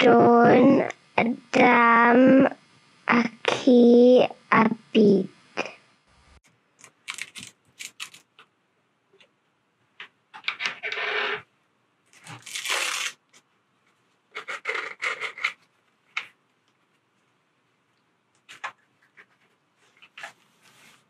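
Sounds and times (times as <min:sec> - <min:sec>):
plastic headset clicks and rustles: 0:06.8 - 0:08.5
velcro strap rasping: 0:07.1 - 0:08.3, 0:12.2 - 0:13.2, 0:14.4 - 0:15.6.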